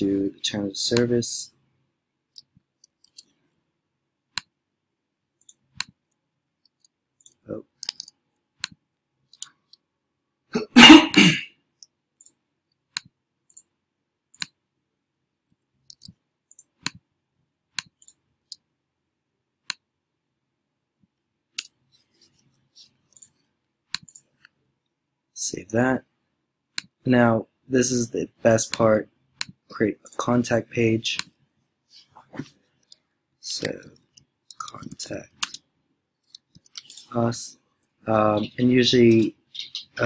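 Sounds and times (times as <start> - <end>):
mouse and keyboard clicking: 15.9 - 17.0.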